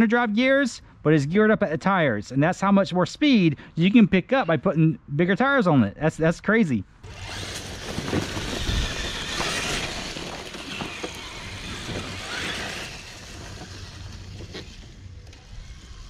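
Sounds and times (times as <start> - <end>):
toy truck motor whirring: 7.0 - 16.0
tyres on dirt: 7.0 - 16.0.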